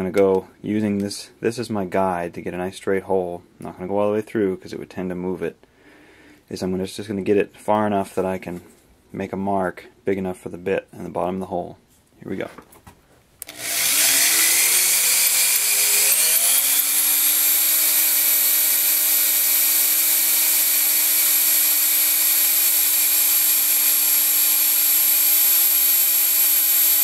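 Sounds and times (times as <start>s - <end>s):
electric drill whining: 13.4s - 27.0s.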